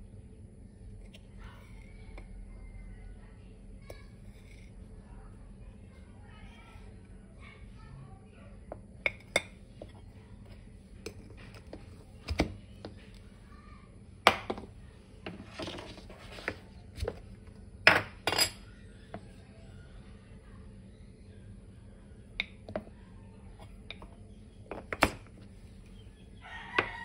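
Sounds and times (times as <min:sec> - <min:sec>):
dishes and cutlery clinking: 0:17.9 - 0:18.6.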